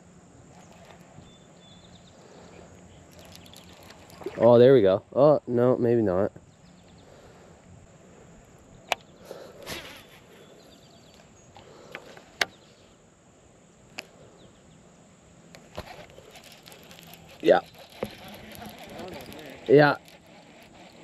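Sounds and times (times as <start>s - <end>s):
faint outdoor background: 0.0s - 21.0s
rod and reel clicks: 0.5s - 1.4s, 3.0s - 4.4s, 15.5s - 21.0s
light rustles: 15.5s - 21.0s.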